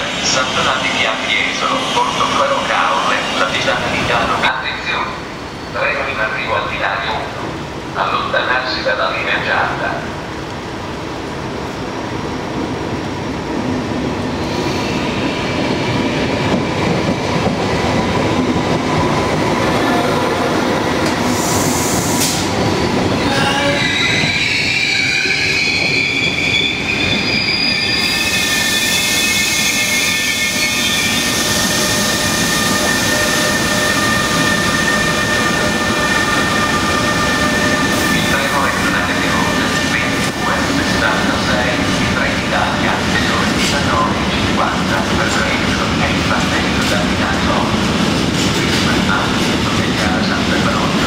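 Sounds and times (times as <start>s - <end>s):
train wheels rumbling on rails: 9.3s - 51.0s
high squealing tones: 22.7s - 40.3s.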